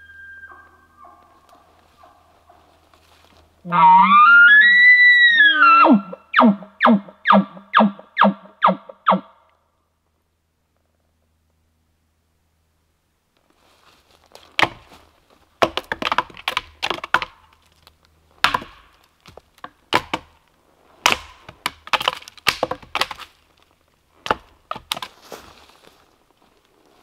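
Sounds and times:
stick beating against tree: 14.6 - 14.9, 15.6 - 17.5, 18.4 - 20.4, 21.0 - 23.3, 24.2 - 25.2.

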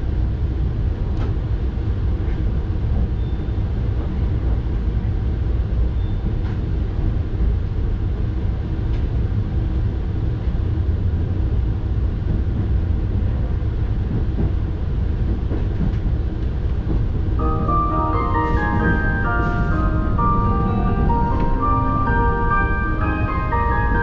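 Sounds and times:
train rumbling on tracks: 0.0 - 24.0.

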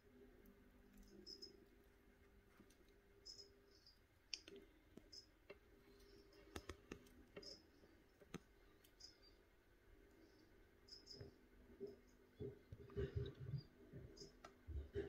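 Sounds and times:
faint steady hum: 0.0 - 15.0
cricket chirping: 0.8 - 1.8, 3.2 - 4.4, 5.0 - 6.6, 7.4 - 12.2, 12.9 - 14.5.

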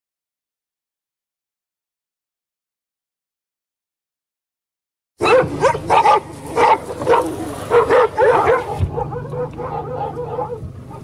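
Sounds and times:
dogs barking: 5.2 - 11.0.

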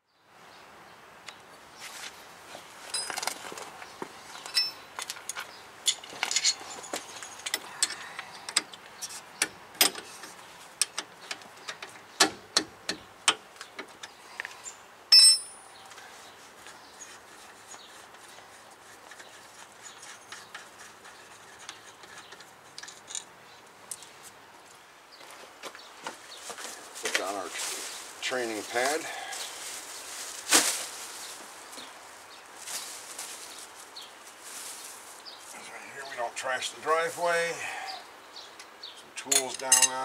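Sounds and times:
metal tools clinking and knocking: 2.9 - 3.4, 4.4 - 8.7, 15.1 - 15.7, 39.2 - 40.0
loud metal clank ringing: 15.1 - 15.7.

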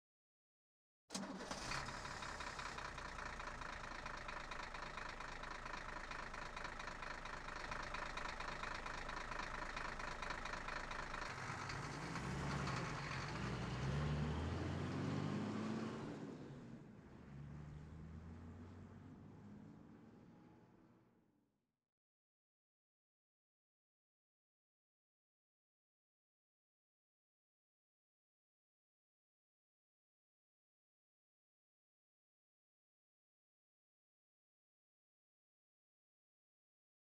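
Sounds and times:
engine running steadily: 1.2 - 13.6.

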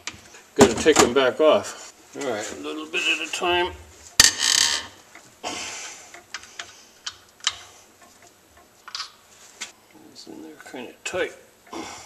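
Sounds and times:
wrench scraping: 4.1 - 5.3.

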